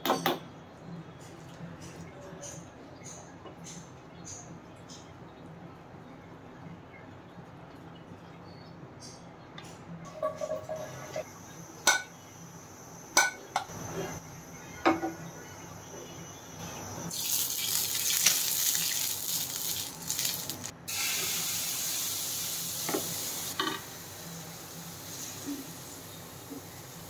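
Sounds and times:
oil sizzling in frying pan: 0:17.1 - 0:27.0.

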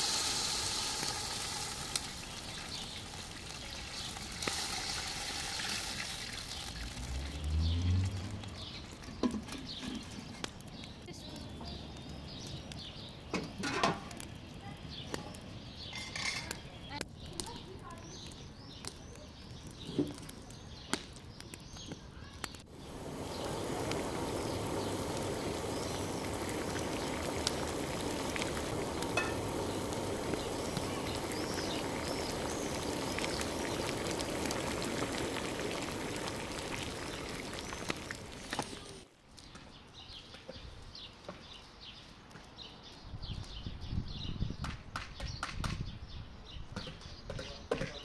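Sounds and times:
broth boiling in a pot: 0:00.0 - 0:17.0, 0:22.4 - 0:39.1
fire crackling: 0:00.0 - 0:44.0.

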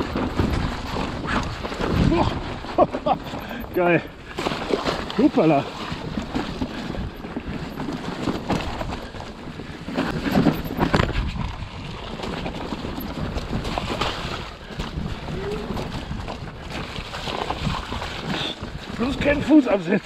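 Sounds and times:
bike rattling: 0:00.0 - 0:20.0
wind rushing over microphone: 0:05.0 - 0:20.0.

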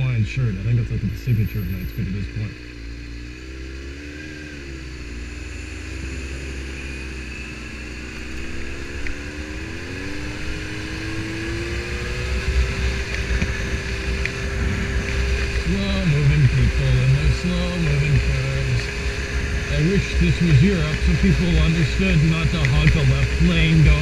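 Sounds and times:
motorcycle engine accelerating: 0:00.0 - 0:24.0
wind rumble: 0:08.2 - 0:24.0.

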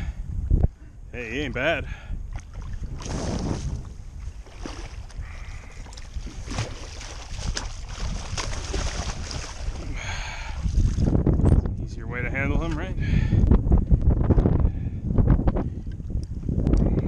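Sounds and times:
wind rumbling on microphone: 0:00.0 - 0:17.0
fish splashing in water: 0:04.5 - 0:09.9.

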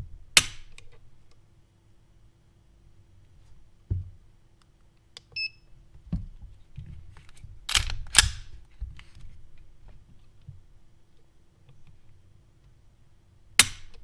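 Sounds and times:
pistol slide racking clacks: 0:07.7 - 0:08.5.

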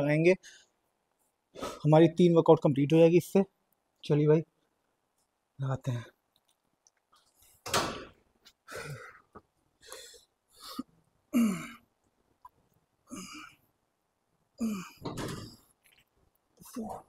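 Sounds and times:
man grunting and exhaling: 0:11.3 - 0:11.8, 0:13.1 - 0:13.6, 0:14.6 - 0:15.2.

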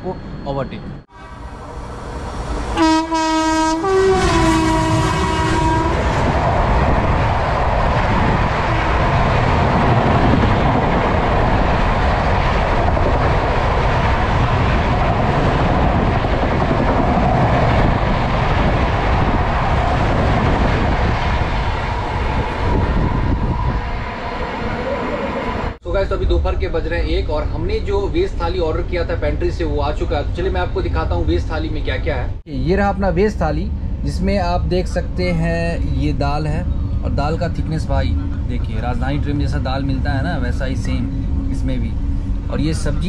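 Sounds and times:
locomotive horn: 0:01.1 - 0:06.4
train coaches rumbling past: 0:01.1 - 0:26.5, 0:32.6 - 0:43.0.

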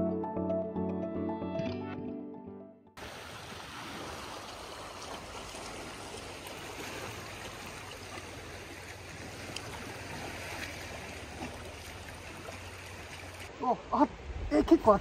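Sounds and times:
sea waves washing over rocks: 0:03.0 - 0:13.5.

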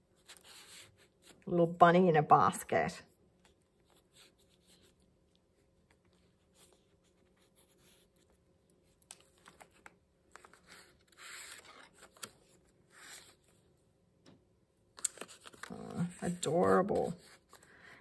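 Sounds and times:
page turning rustle: 0:05.7 - 0:13.6, 0:14.9 - 0:17.7.

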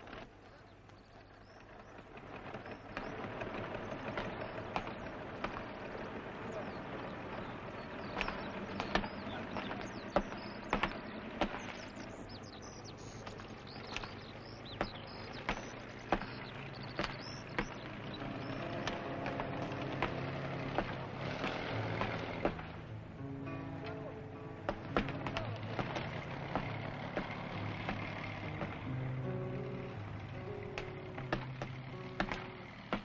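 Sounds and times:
sharp clicks: 0:00.0 - 0:22.9
birds chirping: 0:00.0 - 0:33.0
vehicle engine hum: 0:00.0 - 0:33.0.

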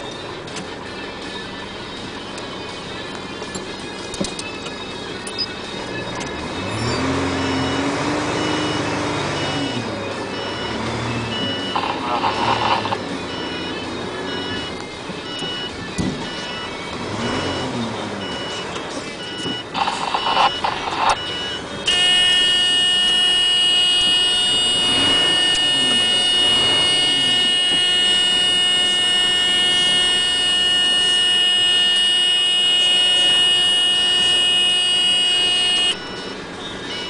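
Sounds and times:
engine running: 0:00.0 - 0:37.0
reversing alarm beeps: 0:00.0 - 0:37.0
high-pitched electronic tone: 0:03.9 - 0:23.2, 0:24.4 - 0:32.1.

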